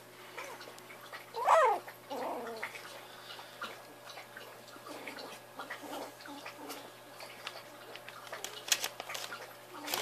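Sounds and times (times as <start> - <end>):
puppy growling: 1.2 - 2.9, 4.8 - 6.9
puppy yelping: 1.3 - 2.8
faint scuffling clicks: 7.4 - 10.0.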